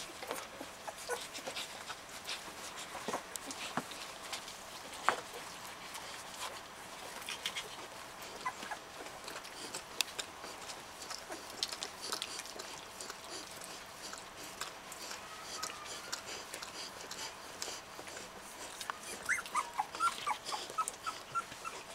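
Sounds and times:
puppy squeaks: 19.0 - 21.9.

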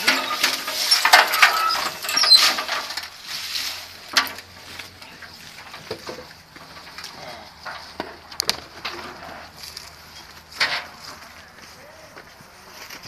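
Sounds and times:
footsteps crunching dry leaves: 7.8 - 13.0.

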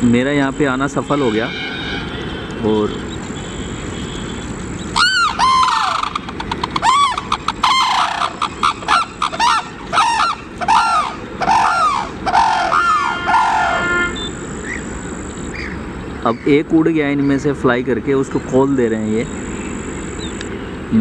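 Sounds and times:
cranes honking calls: 0.4 - 16.6.

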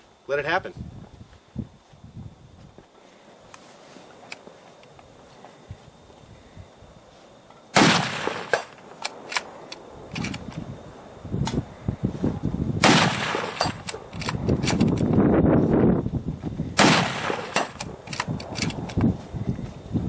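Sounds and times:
wind buffeting microphone: 0.7 - 2.8, 10.0 - 20.0
rifle shots with echo: 7.8 - 8.8, 12.8 - 13.9, 16.8 - 18.1
faint rifle bolt clicks: 8.5 - 10.6, 17.5 - 19.0.

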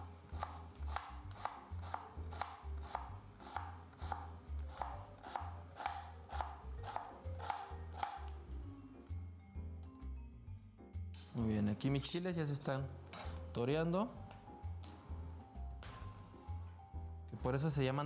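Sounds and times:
knife chopping on cutting board: 0.3 - 8.4.

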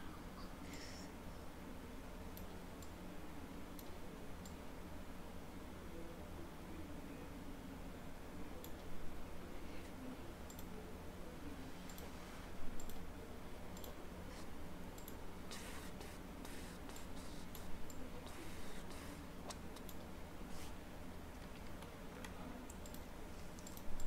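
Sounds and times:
faint low hum: 0.0 - 24.0
computer mouse clicking: 10.5 - 10.8, 11.9 - 12.1, 12.8 - 13.1, 13.7 - 14.0, 15.0 - 20.1, 21.3 - 24.0.

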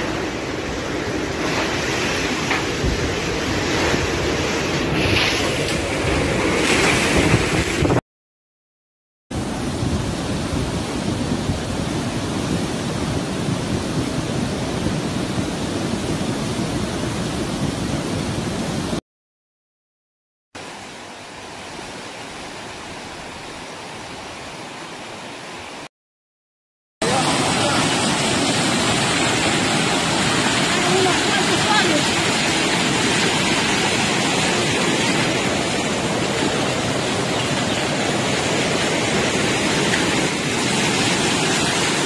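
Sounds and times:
hurricane wind gusting: 0.0 - 8.0, 9.4 - 19.0, 27.0 - 42.0
rush of flooded river water: 0.0 - 8.0, 9.4 - 19.0, 20.6 - 25.9, 27.0 - 42.0
floodwater running down street: 27.0 - 42.0.

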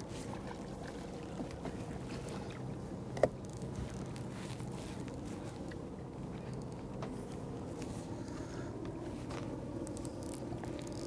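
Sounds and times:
water lapping around boat: 0.0 - 11.0.

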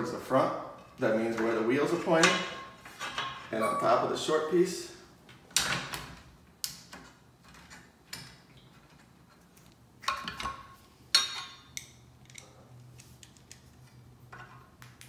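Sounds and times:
metal bolts clicking and knocking: 0.9 - 4.0, 10.0 - 12.6.

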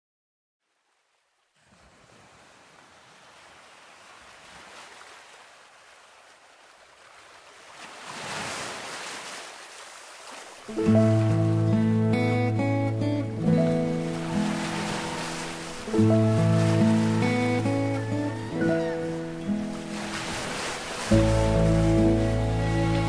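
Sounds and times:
ocean surf rushing: 8.0 - 23.0
acoustic guitar music: 10.7 - 23.0.

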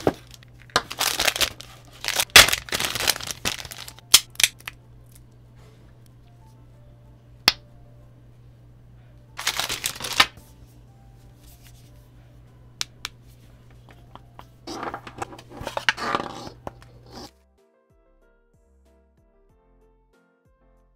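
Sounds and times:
soft background music: 0.0 - 20.9
rustling and rubbing of handled parts: 13.2 - 17.3.

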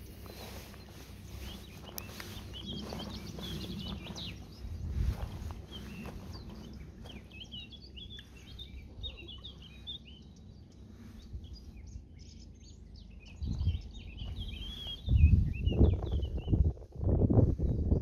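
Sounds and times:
low rumble: 0.0 - 18.0
songbirds chirping: 0.0 - 18.0.

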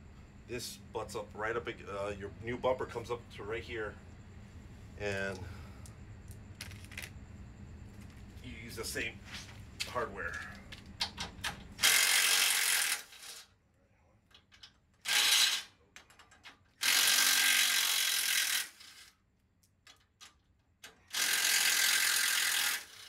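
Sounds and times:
cordless power tool bursts: 11.8 - 13.4, 15.0 - 15.7, 16.8 - 19.1, 21.1 - 23.0.

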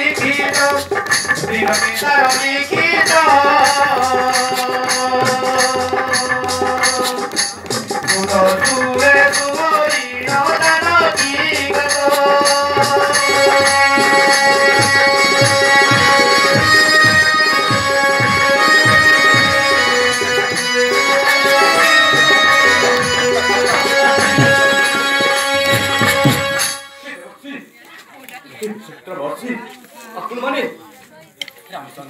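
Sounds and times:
drums and rattling percussion: 0.0 - 26.9
melody line: 13.4 - 26.8.

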